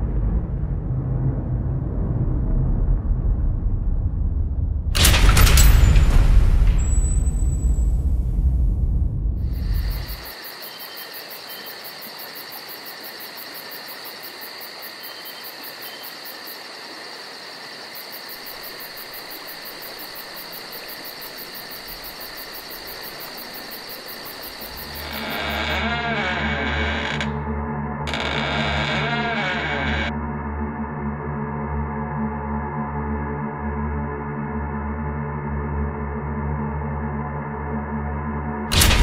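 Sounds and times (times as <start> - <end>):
low boom rumble: 0.0 - 5.4, 6.0 - 9.8
insects chirring: 9.4 - 27.5, 28.1 - 30.1
music: 25.0 - 38.8.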